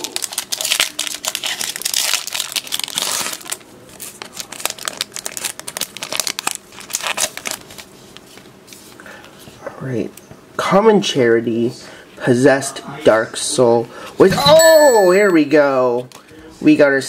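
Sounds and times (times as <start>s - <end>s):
foil wrapper crinkling: 0.0s - 8.5s.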